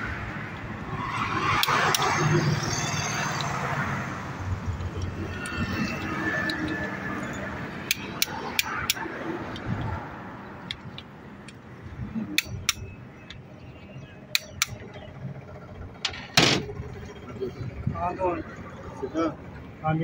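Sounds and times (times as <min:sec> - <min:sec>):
wrench metallic clicks: 0:07.8 - 0:09.7, 0:12.4 - 0:13.4, 0:14.3 - 0:14.8
workshop hum: 0:10.7 - 0:18.9
metal clatter: 0:15.9 - 0:17.2.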